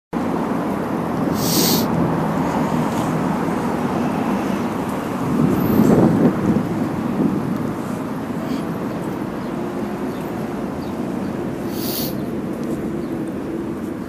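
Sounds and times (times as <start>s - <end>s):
traffic rumble: 0.2s - 14.0s
short sharp hiss: 1.3s - 1.9s, 11.7s - 12.2s.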